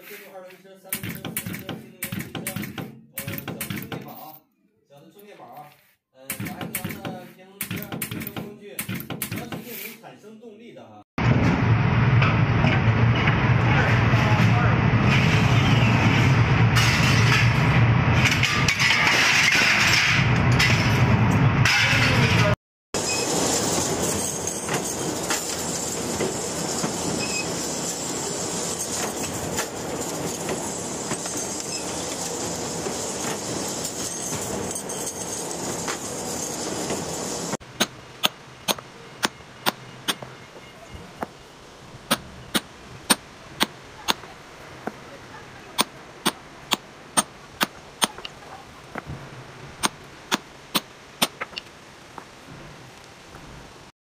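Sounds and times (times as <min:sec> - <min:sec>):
rebar bending machine grinding: 0:23.0 - 0:40.3
hammer striking stone blocks: 0:37.8 - 0:40.3, 0:42.1 - 0:44.3, 0:45.8 - 0:48.3, 0:49.8 - 0:51.7.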